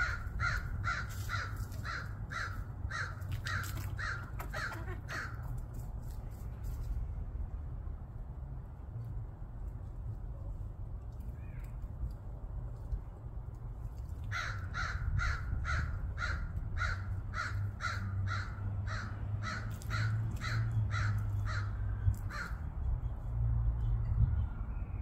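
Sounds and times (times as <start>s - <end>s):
crow cawing: 0.0s - 5.4s, 14.3s - 22.6s.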